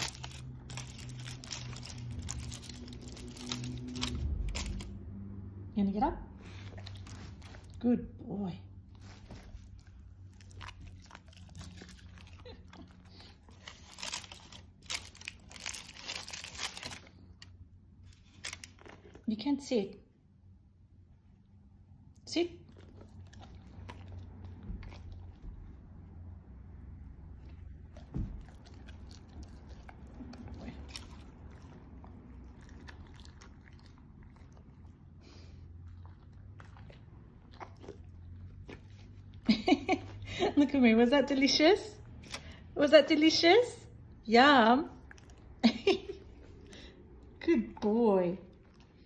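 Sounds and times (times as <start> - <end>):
dog chewing and crunching: 0.0 - 5.1, 6.4 - 8.0, 8.9 - 19.4, 22.6 - 40.4, 44.9 - 49.0.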